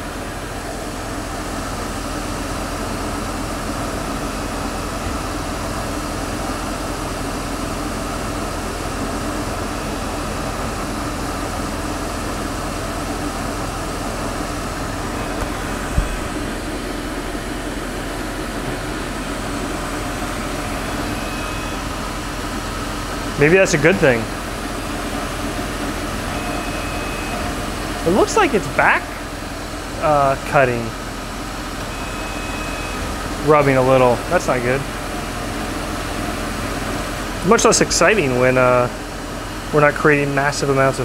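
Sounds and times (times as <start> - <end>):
lathe running and cutting metal: 0.0 - 41.0
brief thump: 15.4 - 16.5.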